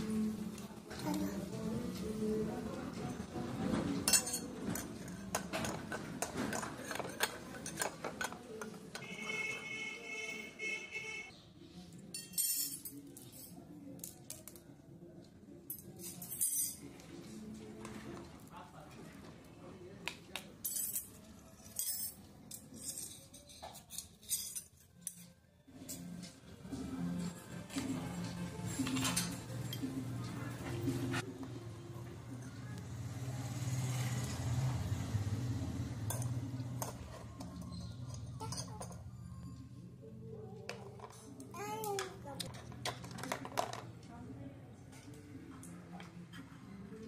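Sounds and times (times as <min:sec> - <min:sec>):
metal spoon clinking in bowl: 0:12.1 - 0:13.6.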